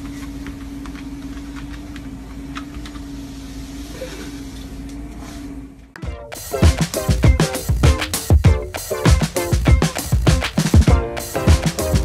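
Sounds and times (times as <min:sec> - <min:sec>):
treadmill motor hum: 0:00.0 - 0:06.0.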